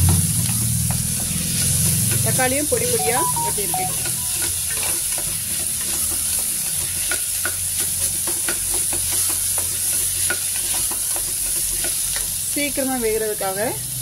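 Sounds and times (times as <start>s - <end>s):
vegetables sizzling in oil: 0.0s - 14.0s
spatula scraping a pan: 5.6s - 12.4s.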